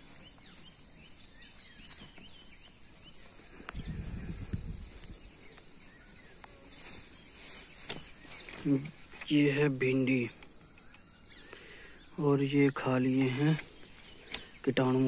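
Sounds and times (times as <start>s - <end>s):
small birds chirping: 0.0s - 15.0s
low rumble on microphone: 3.6s - 5.3s.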